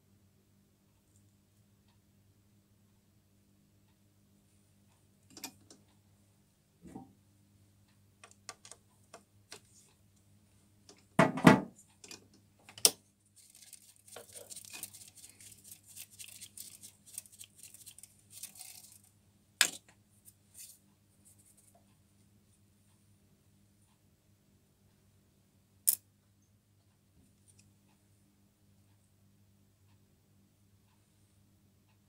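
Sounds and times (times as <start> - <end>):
scratchy rustling of swarf brushed: 13.4 - 19.1, 20.2 - 22.0.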